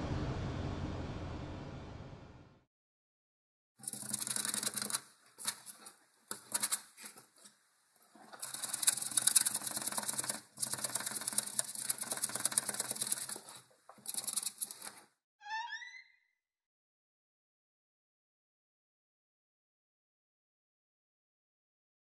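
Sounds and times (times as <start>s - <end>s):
rapid crackling clatter: 3.8s - 6.9s, 8.2s - 15.0s.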